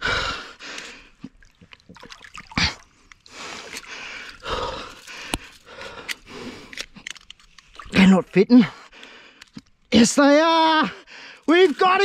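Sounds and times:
person breathing hard: 0.0s - 1.4s, 2.6s - 7.1s, 8.6s - 9.6s, 11.0s - 11.5s.

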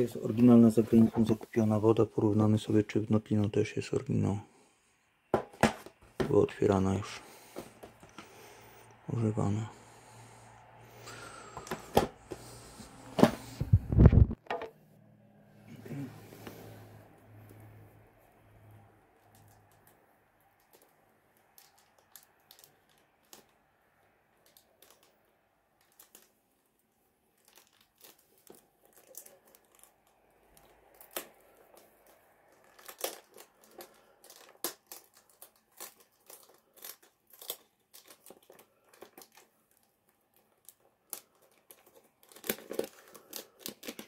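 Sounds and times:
packaging crinkling: 19.3s - 26.5s, 27.2s - 44.0s.

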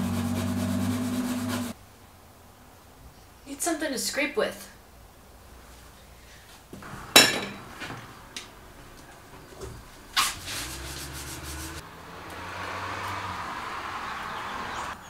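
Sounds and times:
scraper scratching on glass: 0.0s - 1.8s.

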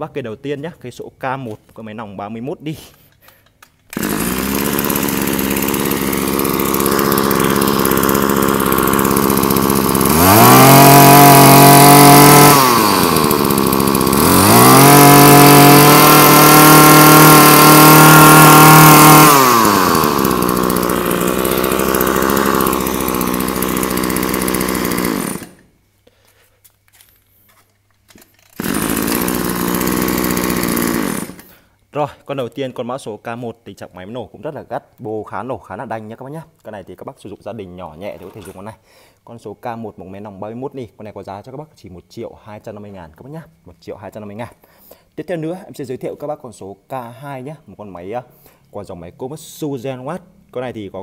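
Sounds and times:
brush cutter engine revving: 3.9s - 25.7s, 28.4s - 31.6s.

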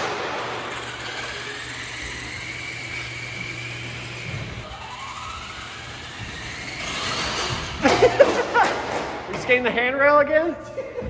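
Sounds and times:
toy truck motor whining: 0.2s - 7.9s.

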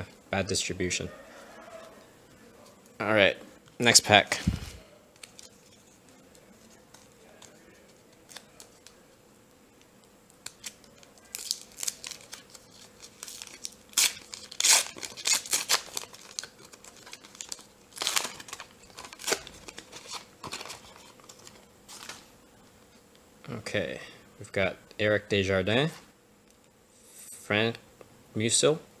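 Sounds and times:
foil wrapper tearing and crinkling: 5.2s - 9.0s, 10.4s - 22.3s.

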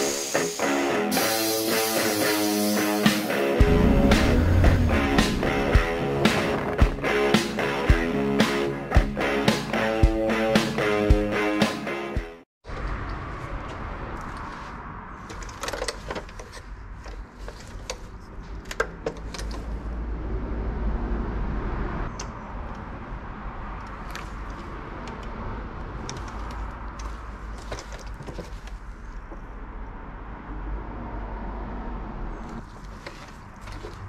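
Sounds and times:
steady low rumble: 3.6s - 7.6s.

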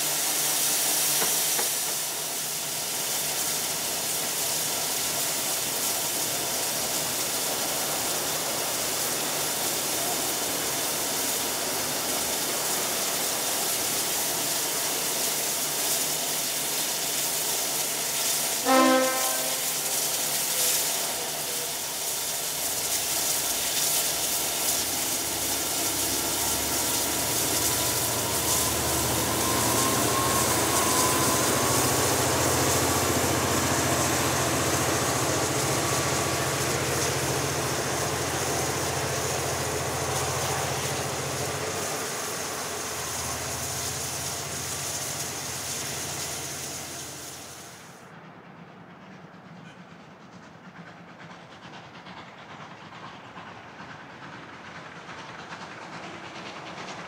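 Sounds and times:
diesel locomotive engine rumble: 0.0s - 57.0s
steam locomotive hissing: 0.0s - 57.0s
locomotive whistle toot: 18.6s - 19.9s, 28.1s - 32.6s.

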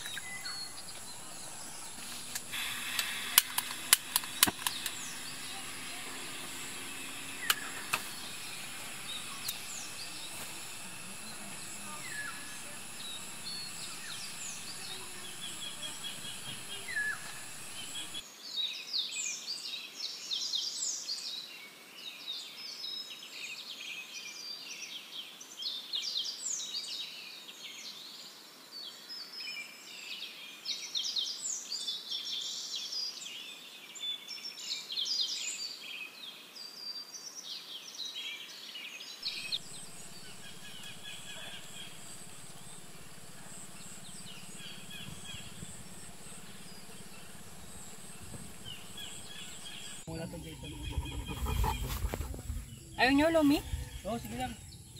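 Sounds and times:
birds chirping and singing: 0.0s - 18.2s, 39.2s - 54.9s
high-pitched drone: 0.0s - 18.2s.

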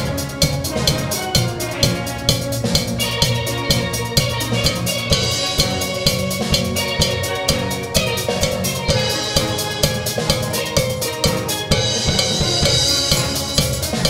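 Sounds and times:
steel band playing: 0.0s - 14.0s.

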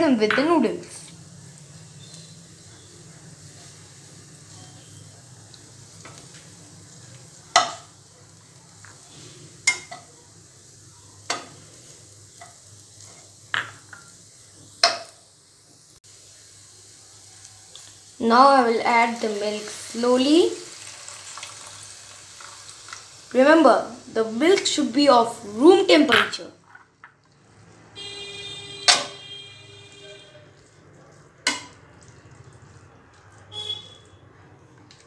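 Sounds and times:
noodles sizzling in a wok: 0.0s - 35.0s
metal spatula clacking on pan: 7.5s - 7.9s, 9.6s - 10.1s, 28.9s - 29.2s, 31.4s - 31.8s.

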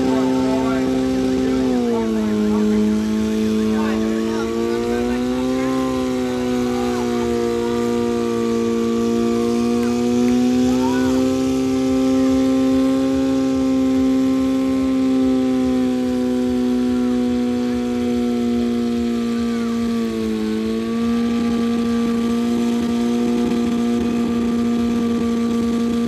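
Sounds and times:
car engine revving high: 0.0s - 26.0s.

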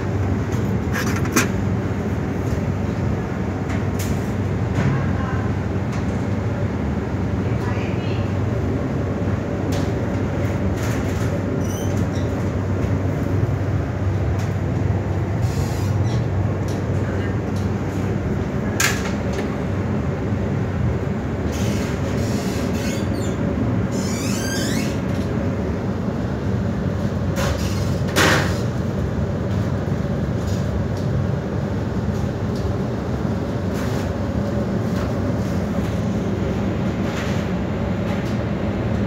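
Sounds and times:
short high squeaks: 21.6s - 25.0s.

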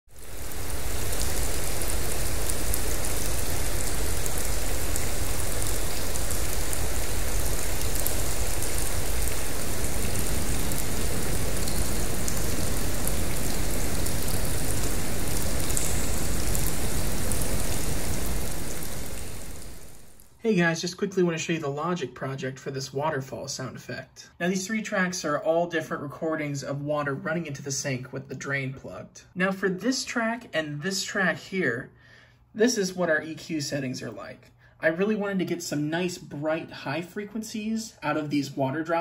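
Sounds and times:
rushing water: 0.1s - 20.2s
filtered white noise: 0.1s - 22.0s.

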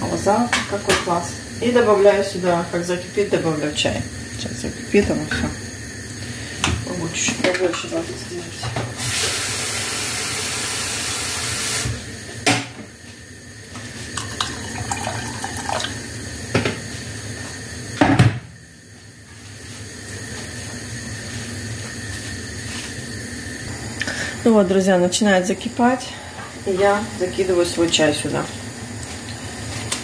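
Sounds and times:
water running from a tap: 0.0s - 12.4s, 13.4s - 18.0s, 20.0s - 30.0s
water pouring into a metal pot: 14.1s - 16.4s.

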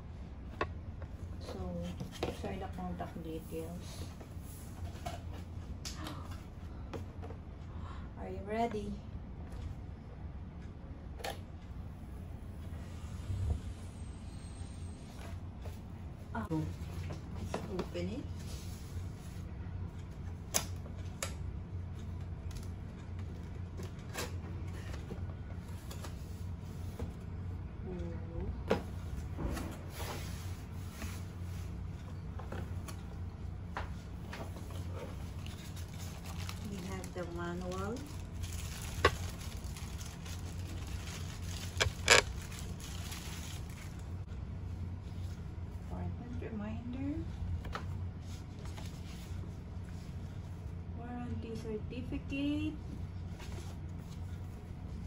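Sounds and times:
steady low hum: 0.0s - 55.0s
plastic bag crinkling: 35.4s - 44.1s
sharp plastic crackles: 35.4s - 44.2s.

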